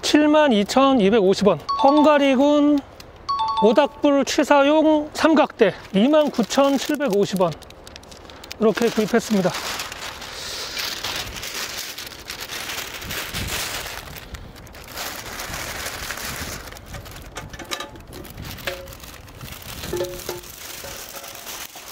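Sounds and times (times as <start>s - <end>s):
rustling and crackling handling noise: 5.2s - 21.9s.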